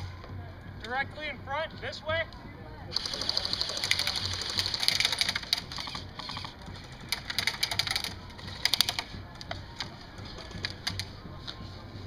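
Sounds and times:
airsoft guns firing: 2.9s - 6.6s.

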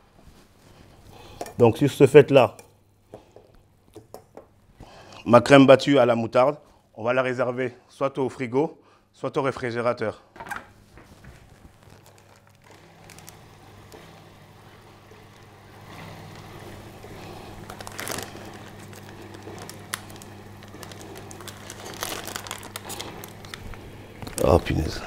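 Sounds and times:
kitchen handling noises: 10.4s - 11.5s
steady low hum: 10.9s - 25.0s.

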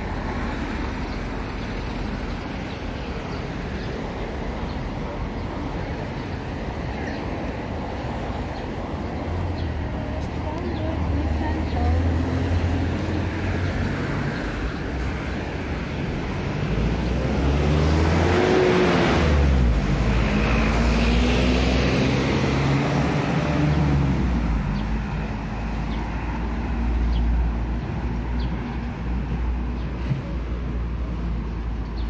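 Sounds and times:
traffic rumble: 0.0s - 32.0s
vehicle passing close: 16.4s - 25.5s.

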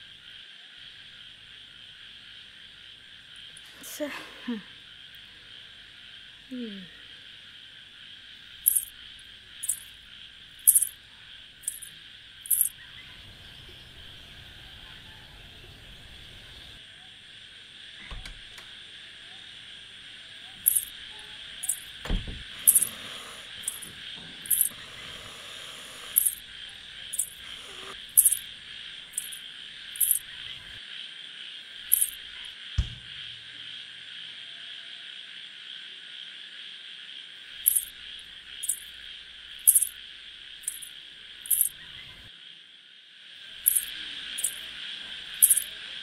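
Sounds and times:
insects chirring: 0.0s - 46.0s
high-pitched chirps: 9.6s - 9.9s
dull thumps: 32.8s - 33.2s.

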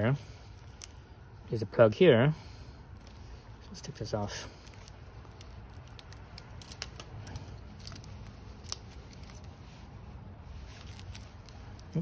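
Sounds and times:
plastic connectors clicking: 4.6s - 9.4s.

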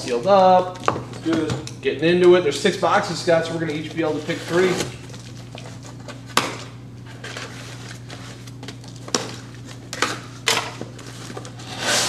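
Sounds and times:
steady low hum: 0.0s - 12.0s
cardboard scraping: 3.9s - 5.1s, 10.9s - 12.0s.

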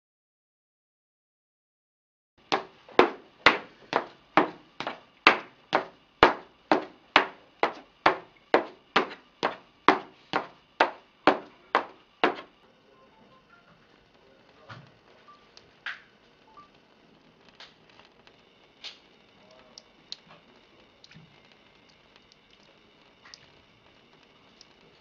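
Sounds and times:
high heels clicking on laminate: 2.5s - 12.5s.

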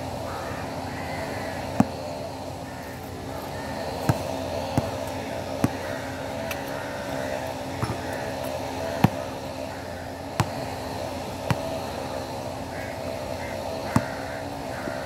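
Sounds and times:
steady background hum: 0.0s - 15.0s
basketball bouncing on hard court: 1.8s - 2.0s, 4.0s - 6.6s, 7.8s - 8.1s, 8.9s - 9.3s, 10.4s - 10.7s, 11.4s - 11.9s.

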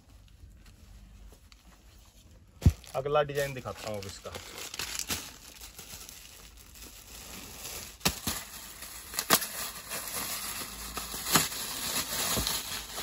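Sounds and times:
plastic packaging crinkling: 2.6s - 13.0s.

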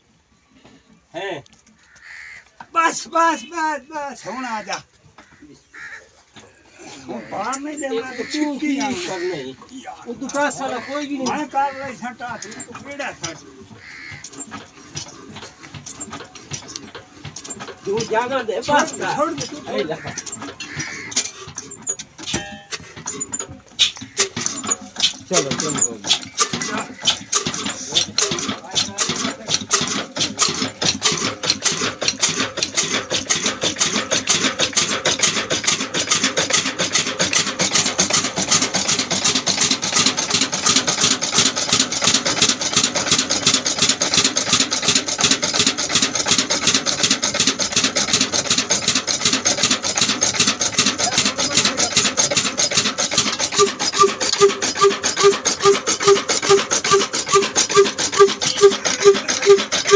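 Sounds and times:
diesel engine clattering: 6.2s - 59.9s
pulsing tone: 53.5s - 59.9s.

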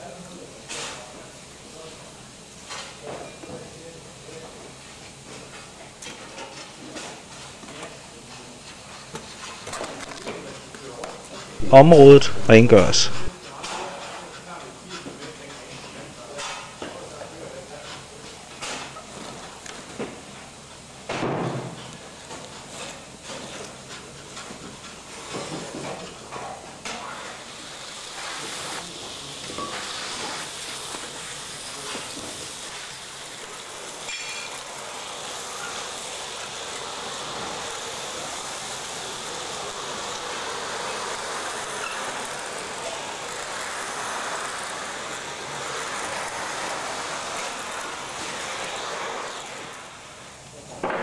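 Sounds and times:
vacuum cleaner running: 27.0s - 50.7s.

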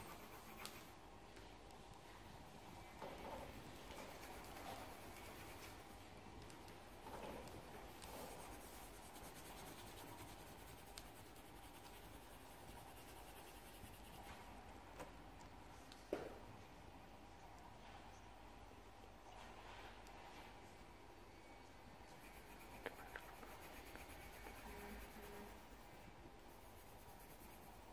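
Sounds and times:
colouring tool scratching paper: 0.0s - 0.9s, 3.4s - 6.0s, 6.8s - 14.3s, 22.2s - 27.9s.

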